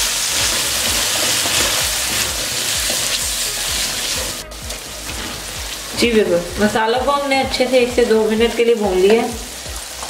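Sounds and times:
spatula scraping and knocking pan: 0.0 - 4.4
chickpeas sizzling in hot oil: 0.0 - 10.0.

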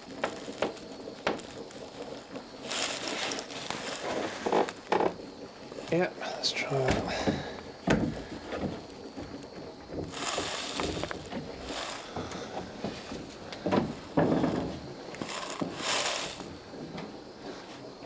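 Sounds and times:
short scraping rustles: 2.6 - 4.9, 10.1 - 13.4, 14.3 - 16.5.

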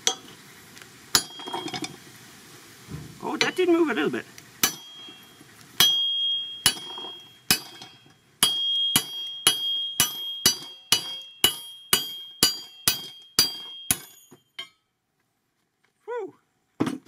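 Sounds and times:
hammer striking ringing steel: 1.2 - 1.9, 4.6 - 14.8.

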